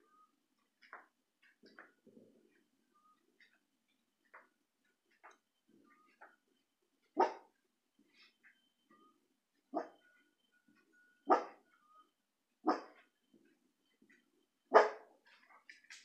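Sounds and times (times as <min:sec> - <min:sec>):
dog barking: 0:07.2 - 0:07.5, 0:09.7 - 0:10.0, 0:11.2 - 0:11.6, 0:12.6 - 0:13.0, 0:14.7 - 0:15.1.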